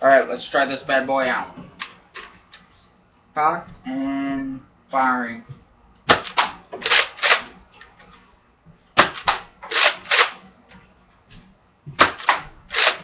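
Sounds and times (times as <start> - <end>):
dart blaster clacks and pops: 6.1 - 7.5, 9.0 - 10.4, 12.0 - 13.0.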